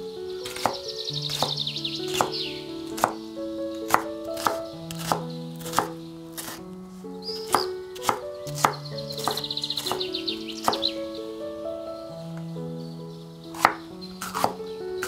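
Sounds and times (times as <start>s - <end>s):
soft background music: 0.0s - 15.0s
knife chopping on cutting board: 0.5s - 2.4s, 3.0s - 3.2s, 3.9s - 6.6s, 7.5s - 10.0s, 13.6s - 14.6s.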